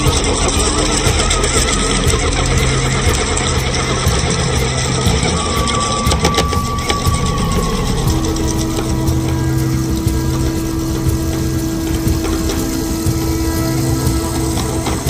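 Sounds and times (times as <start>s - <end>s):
engine running with low hum: 0.0s - 15.0s
thin high tone: 0.0s - 15.0s.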